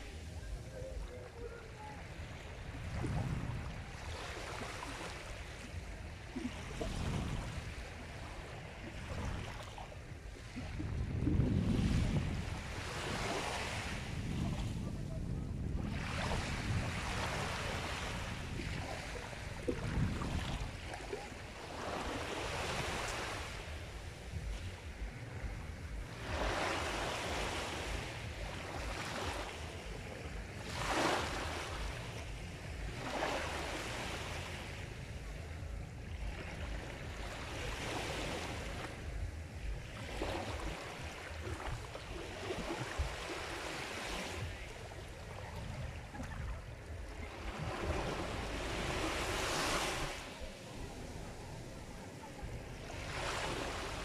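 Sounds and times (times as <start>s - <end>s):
sea waves breaking on shore: 0.0s - 54.0s
steady low rumble: 5.2s - 13.1s, 13.9s - 43.6s, 50.0s - 54.0s.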